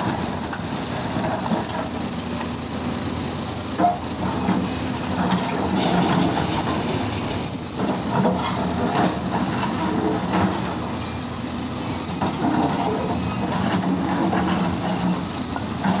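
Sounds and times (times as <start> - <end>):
excavator diesel engine: 0.0 - 16.0
thin high squeal: 10.6 - 15.7.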